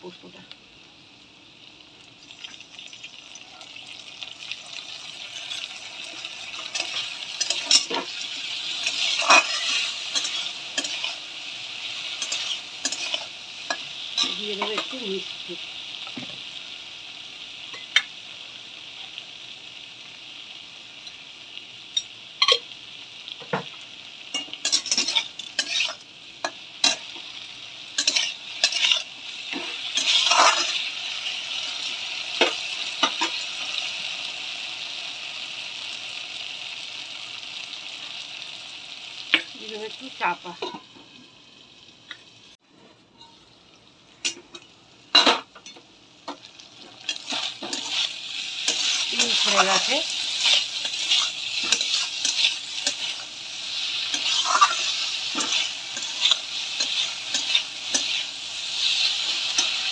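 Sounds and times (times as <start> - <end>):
paste sizzling in hot oil: 1.6 - 42.6, 46.0 - 59.9
metal spatula scraping a pan: 5.3 - 11.2, 12.0 - 14.9, 24.3 - 26.0, 28.0 - 30.9, 47.0 - 59.9.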